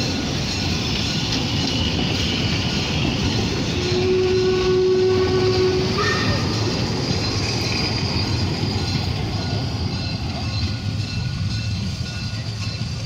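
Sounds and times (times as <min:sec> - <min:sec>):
train carriages rolling past: 0:00.0 - 0:13.0
wheels clacking on rails: 0:00.0 - 0:13.0.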